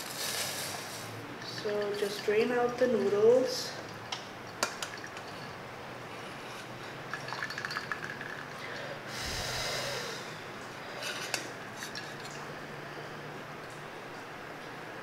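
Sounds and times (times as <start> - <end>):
water pouring from pot: 7.0 - 8.6.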